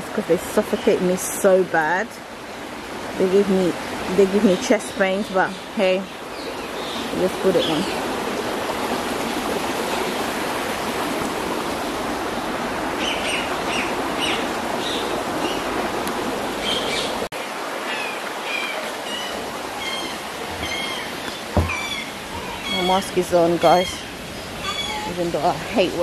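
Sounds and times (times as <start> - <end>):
running water: 0.0 - 26.0
small birds chirping: 17.9 - 25.5.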